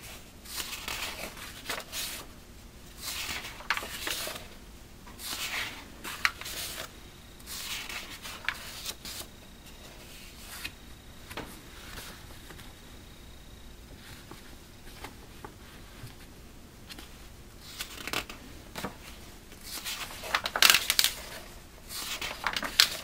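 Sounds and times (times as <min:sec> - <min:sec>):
paper rustling: 0:00.4 - 0:02.3, 0:02.9 - 0:04.5, 0:05.1 - 0:12.8, 0:13.9 - 0:16.3, 0:16.9 - 0:23.0
magazine pages turning: 0:00.5 - 0:02.3, 0:03.0 - 0:04.5, 0:05.2 - 0:06.9, 0:07.5 - 0:12.8, 0:16.9 - 0:23.0.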